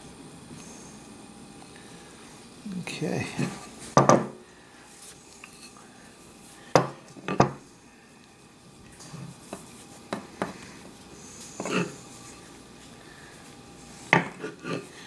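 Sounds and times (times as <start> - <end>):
hand tools knocking on worktable: 4.0 - 4.4.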